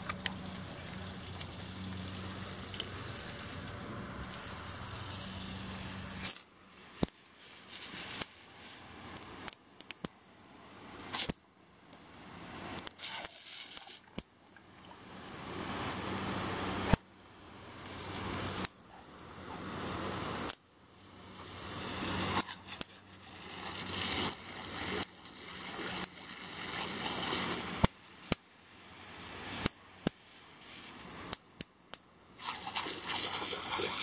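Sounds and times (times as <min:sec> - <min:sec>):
garden hose spraying water: 0:00.0 - 0:09.5, 0:12.6 - 0:14.2, 0:17.6 - 0:27.9, 0:29.0 - 0:31.4, 0:32.4 - 0:34.0.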